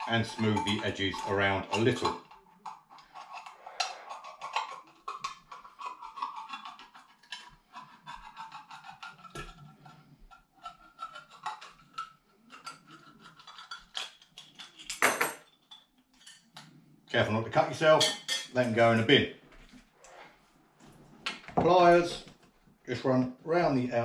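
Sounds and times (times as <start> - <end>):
tin opener clicking and scraping: 0.0 - 10.0.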